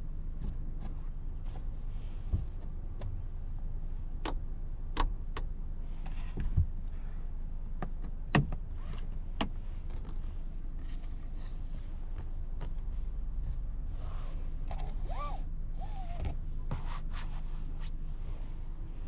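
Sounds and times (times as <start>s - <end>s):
steady low hum: 0.0s - 19.0s
clicks and knocks of car trim: 7.8s - 8.7s, 9.3s - 10.2s.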